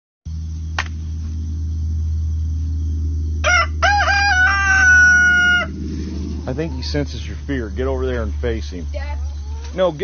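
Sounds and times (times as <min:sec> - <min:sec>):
steady low hum: 0:00.3 - 0:10.0
rooster crowing: 0:03.4 - 0:07.3.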